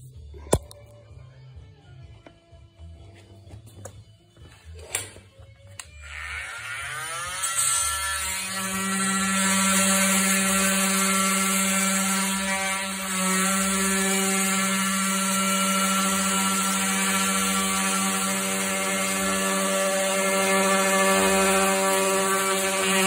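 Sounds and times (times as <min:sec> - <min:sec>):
oscillating multi-tool buzzing: 0:05.8 - 0:23.0.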